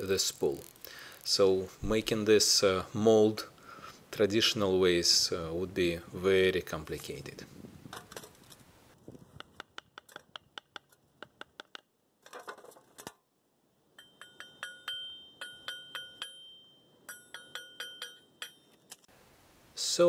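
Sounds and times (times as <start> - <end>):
ringing metallic clinks: 14.0 - 19.0.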